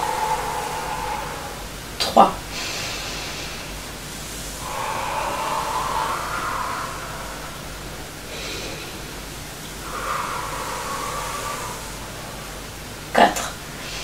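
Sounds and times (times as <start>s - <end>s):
woman exhaling through lips: 0.0s - 14.0s
woman inhaling: 0.0s - 14.0s.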